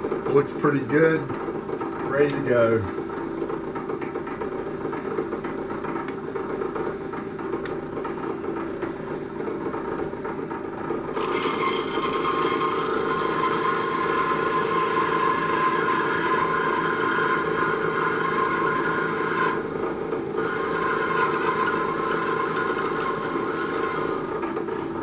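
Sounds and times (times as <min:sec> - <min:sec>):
power tool motor whine: 0:11.1 - 0:25.0
wood rasping: 0:11.1 - 0:25.0.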